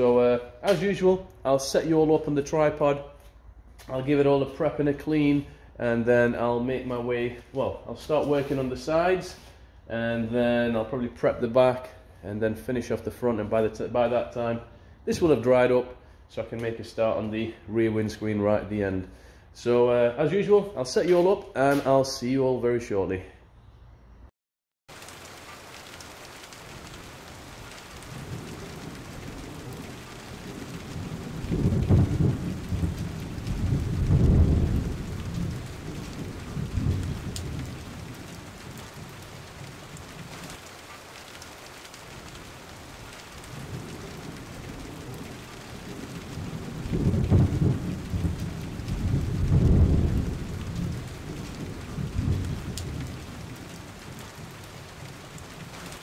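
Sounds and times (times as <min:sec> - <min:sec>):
rain hissing: 0:24.9 - 0:56.0
low rolls of thunder: 0:26.7 - 0:40.6, 0:42.1 - 0:56.0.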